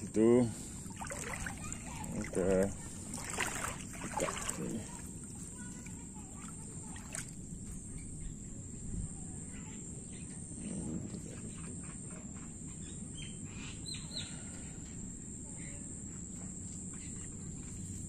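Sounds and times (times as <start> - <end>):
high-pitched insect hum: 0.0 - 18.0
birds chirping: 11.3 - 14.8.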